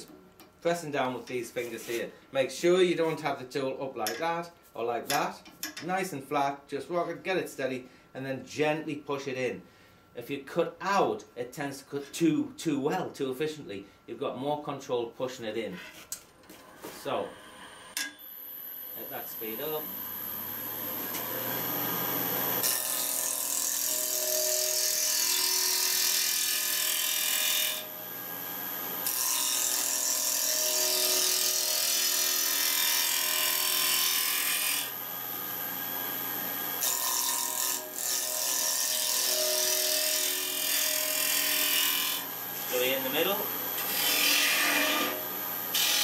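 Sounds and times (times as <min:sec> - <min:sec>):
lathe motor whine: 0:16.6 - 0:22.7.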